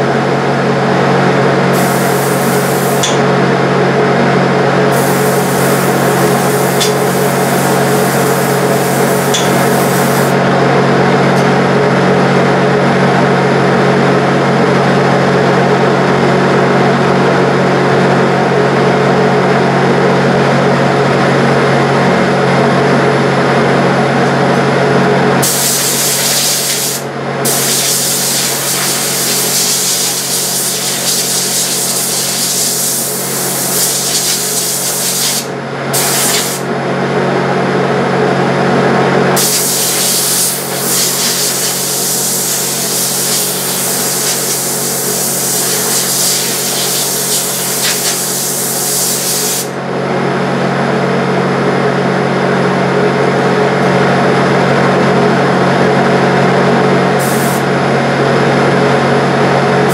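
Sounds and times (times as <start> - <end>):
exhaust fan droning: 0.0 - 59.9
spray gun hissing: 1.7 - 3.3, 4.9 - 10.4, 25.4 - 36.6, 39.4 - 49.7, 57.2 - 57.6.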